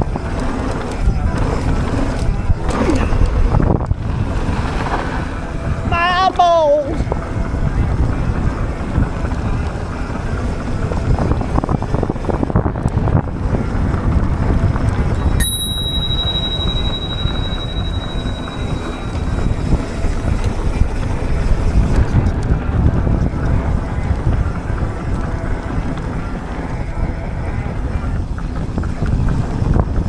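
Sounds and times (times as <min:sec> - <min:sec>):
bike tyres rolling on dirt: 0:00.0 - 0:05.9, 0:07.1 - 0:15.4, 0:16.2 - 0:30.0
wind buffeting microphone: 0:00.0 - 0:30.0
thin high ring: 0:15.2 - 0:20.3.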